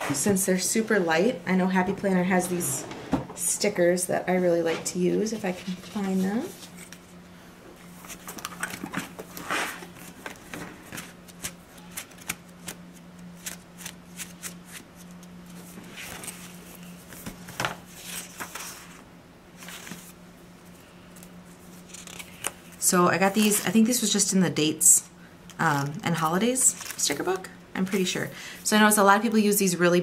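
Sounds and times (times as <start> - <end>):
faint steady hum: 0.0 - 30.0
paper pages rustling and flicking: 8.0 - 19.0, 19.6 - 20.2, 21.6 - 22.8, 26.6 - 28.1.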